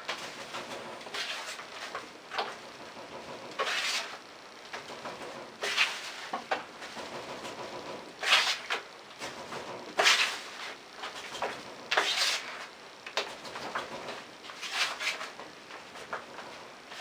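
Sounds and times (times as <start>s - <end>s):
knife scraping joint compound: 3.6s - 4.2s, 10.0s - 12.7s.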